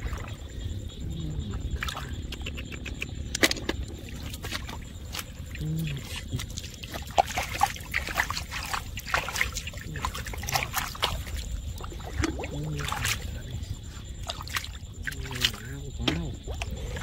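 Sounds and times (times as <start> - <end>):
hand squelching through wet mud: 4.0 - 17.0.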